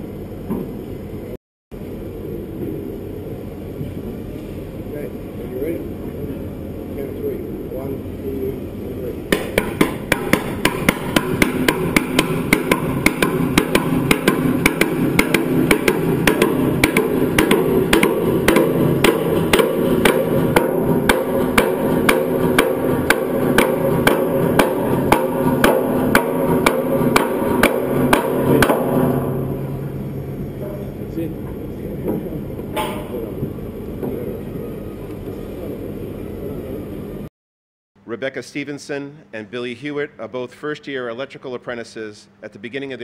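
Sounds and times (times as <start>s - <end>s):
steady low hum: 0.0s - 37.3s
sharp regular knocks: 9.3s - 29.9s.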